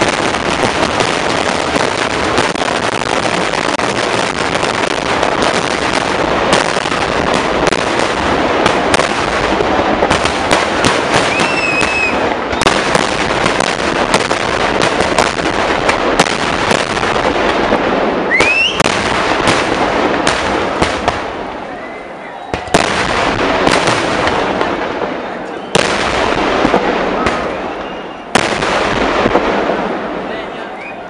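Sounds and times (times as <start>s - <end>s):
firecrackers crackling and banging: 0.0s - 31.0s
firework whistling: 8.7s - 14.3s, 18.2s - 24.4s, 26.8s - 29.0s, 30.5s - 31.0s.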